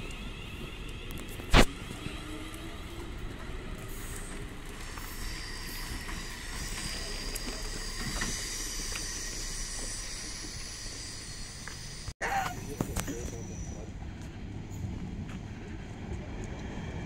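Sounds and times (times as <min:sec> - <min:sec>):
electric train pulling away: 0:00.0 - 0:12.1.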